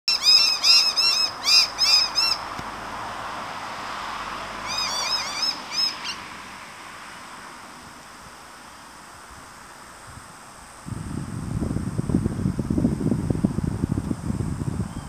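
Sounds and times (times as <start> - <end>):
young birds squawking calls: 0.1 - 2.5, 4.6 - 6.2.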